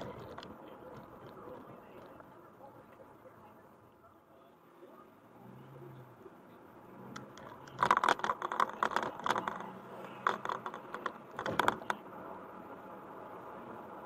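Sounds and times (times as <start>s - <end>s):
rapid clicks and rattles: 0.0s - 2.4s, 7.1s - 12.0s
faint road noise: 0.0s - 14.0s.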